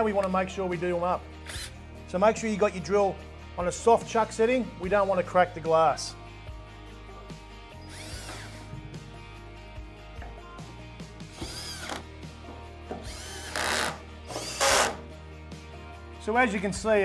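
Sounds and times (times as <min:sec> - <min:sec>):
background music: 0:00.0 - 0:17.0
cordless drills whirring: 0:01.5 - 0:01.8, 0:07.8 - 0:08.7, 0:11.4 - 0:12.0, 0:13.0 - 0:15.0.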